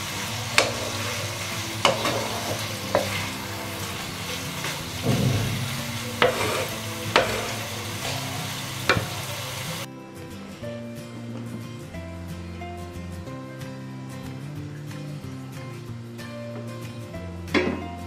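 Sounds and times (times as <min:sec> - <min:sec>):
food sizzling in a wok: 0:00.0 - 0:09.9
spatula clacking against pan: 0:00.5 - 0:01.1, 0:01.8 - 0:03.4, 0:04.6 - 0:07.8, 0:08.9 - 0:09.2.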